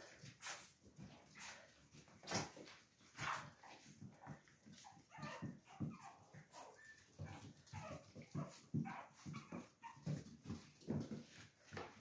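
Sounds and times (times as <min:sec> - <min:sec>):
paws scuffling and tapping: 0:00.0 - 0:12.0
puppies yipping and whimpering: 0:03.2 - 0:11.0.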